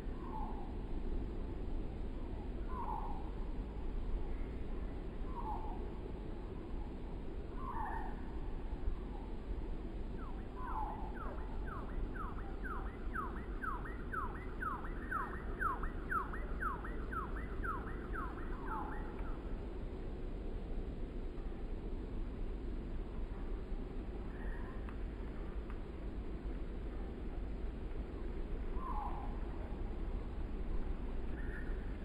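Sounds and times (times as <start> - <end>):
wind rumbling on microphone: 0.0 - 32.0
distant repeating downward call: 10.2 - 19.5.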